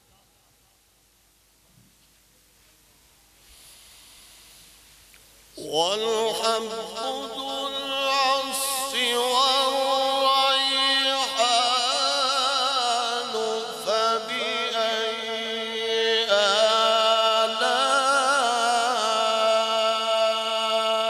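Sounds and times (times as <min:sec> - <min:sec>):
man chanting recitation: 0:05.5 - 0:21.0.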